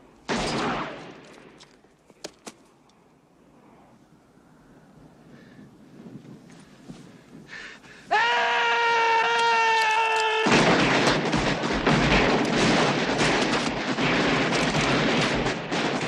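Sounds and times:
man yelling: 8.1 - 10.5.

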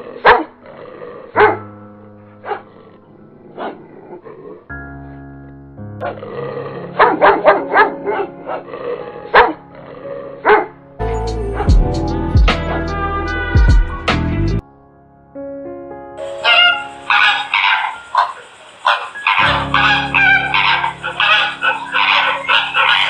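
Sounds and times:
dog barking: 0.2 - 0.5, 1.4 - 1.6, 2.4 - 2.8, 3.5 - 3.9, 7.0 - 8.7, 9.3 - 9.6, 10.4 - 10.7, 16.3 - 23.0
music with long held notes: 10.7 - 14.6, 19.2 - 23.0.

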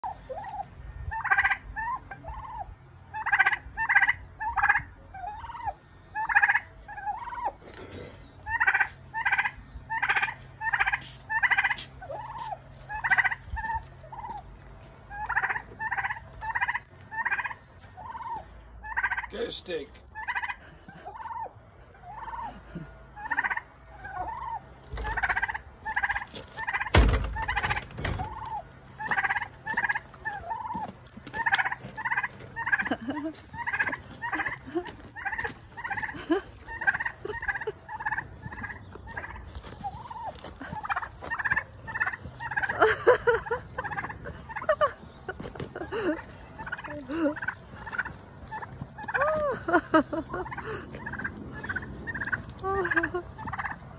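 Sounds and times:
turkey calling: 0.0 - 53.9
loud thump: 26.9 - 28.2.

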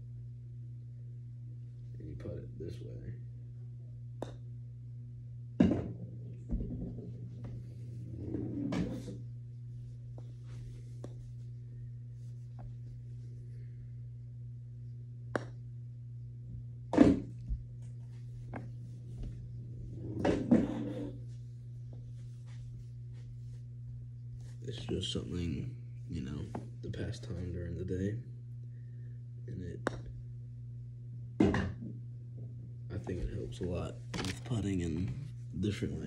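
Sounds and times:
steady low hum: 0.0 - 36.0
ball knocking in putting trainer: 15.3 - 15.6, 16.9 - 17.6, 20.1 - 21.2
putter striking golf ball: 15.3 - 15.6.

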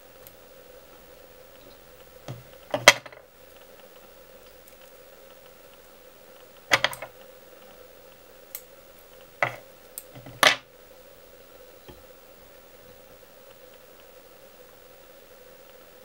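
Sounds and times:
faint steady hum: 0.0 - 16.0
fly-tying tools clicking and tapping: 6.6 - 7.2, 9.2 - 10.6.

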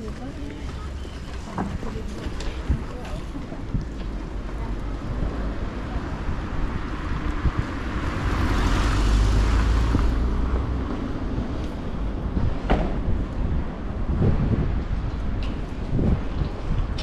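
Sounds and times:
car passing by: 5.0 - 12.0.

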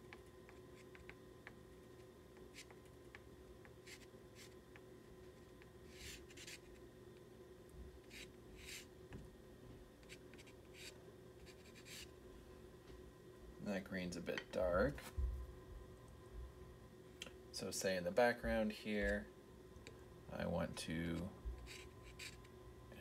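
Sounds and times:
faint steady hum: 0.0 - 23.0
pastel scratching on paper: 3.8 - 4.6, 5.4 - 6.8, 8.0 - 8.9, 10.0 - 12.1, 21.6 - 22.4.

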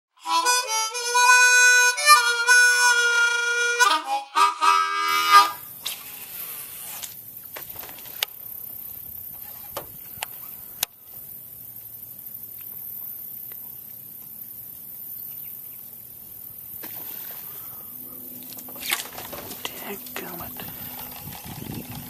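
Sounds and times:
harmonica tune: 0.1 - 6.6
steady outdoor hiss: 0.2 - 22.0.

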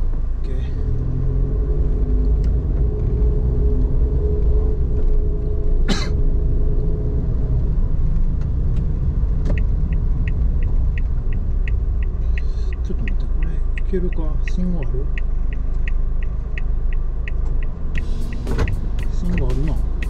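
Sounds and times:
road rumble inside car: 0.0 - 20.0
turn signal ticking: 8.3 - 20.0
tyre or engine tone: 18.0 - 20.0.

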